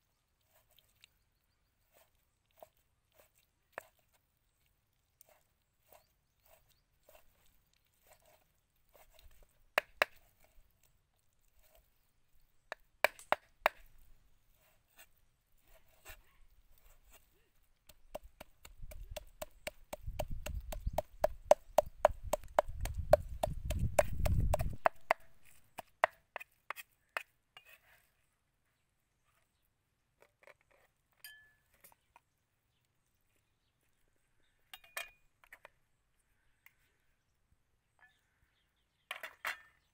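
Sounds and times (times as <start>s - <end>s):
cleaver chopping on wooden block: 9.8s - 10.2s, 12.7s - 13.9s, 17.9s - 27.3s.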